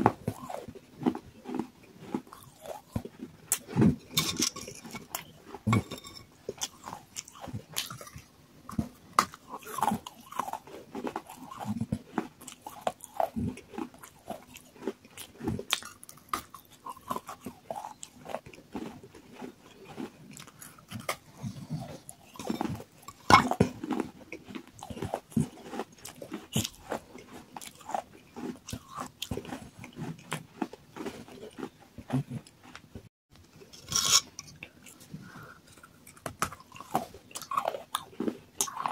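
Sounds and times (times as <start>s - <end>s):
biting and chewing clay pieces: 0.0s - 38.9s.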